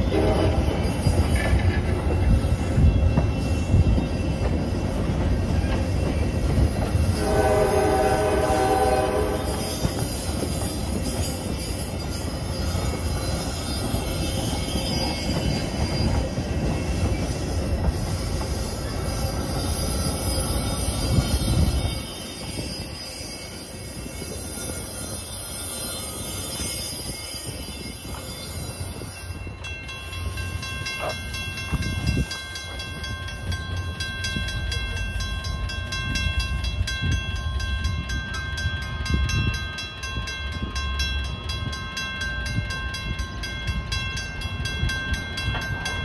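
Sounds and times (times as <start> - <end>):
high wheel squeal: 0.0 - 31.2
train wheels rumbling on rail: 0.0 - 46.0.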